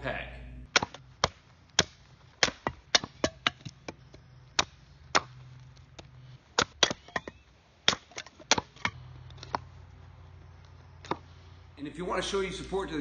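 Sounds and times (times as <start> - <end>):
hatchet chopping wood: 0.7 - 9.7.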